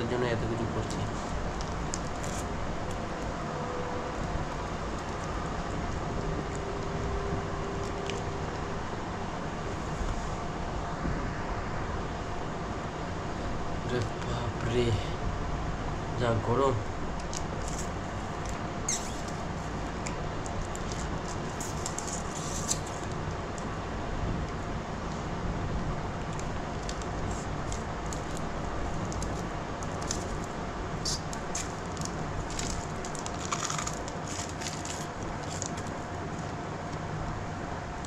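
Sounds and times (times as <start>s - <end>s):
electric fan running: 0.0s - 38.0s
clicks and rustles of handling: 26.2s - 37.0s.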